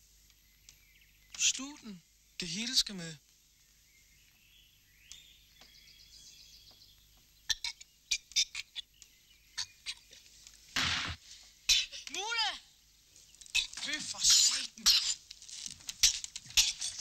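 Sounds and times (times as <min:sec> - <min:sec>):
birds chirping: 0:00.0 - 0:17.0
rough noise burst: 0:10.7 - 0:11.4.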